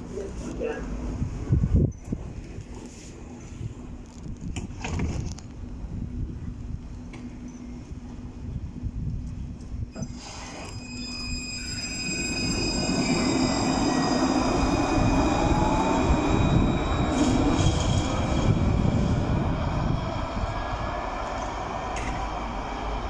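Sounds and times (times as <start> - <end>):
steel wheels rumbling on rails: 0.2 - 23.0
tram motors whining: 9.8 - 23.0.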